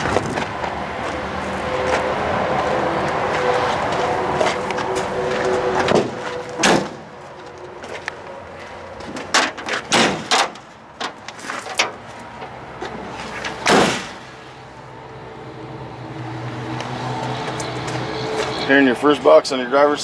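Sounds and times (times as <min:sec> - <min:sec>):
loud door thump: 0:05.9 - 0:07.0, 0:09.9 - 0:10.6, 0:13.6 - 0:14.2.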